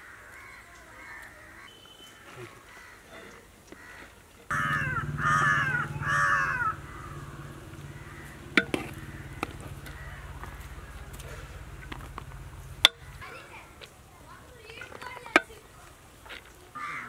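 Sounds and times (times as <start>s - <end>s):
crow cawing: 0.0s - 1.7s, 2.6s - 3.1s, 3.8s - 11.8s, 16.8s - 17.0s
steady low hum: 4.5s - 14.7s.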